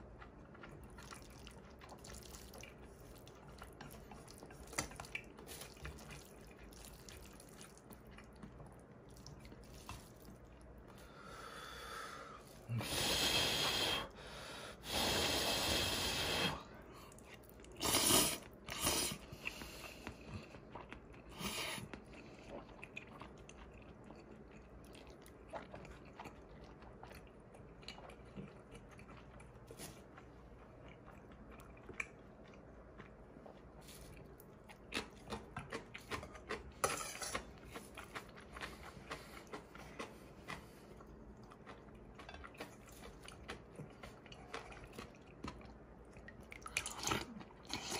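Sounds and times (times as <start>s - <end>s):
soft chewing with crunches: 0.0s - 13.9s, 14.7s - 47.9s
loud noodle slurps: 17.8s - 19.2s.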